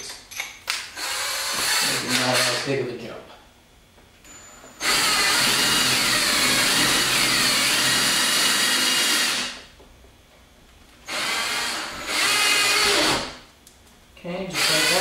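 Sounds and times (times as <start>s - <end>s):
power drill whining: 1.0s - 2.6s, 4.3s - 9.6s, 11.1s - 13.4s, 14.6s - 15.0s.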